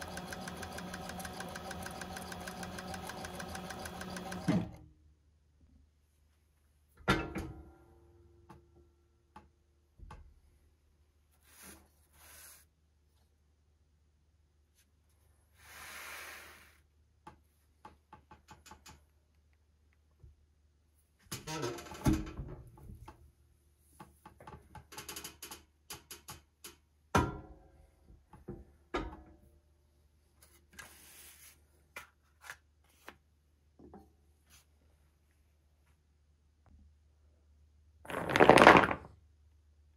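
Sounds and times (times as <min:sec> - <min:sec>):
leather scraping across board: 0:38.1 - 0:39.0.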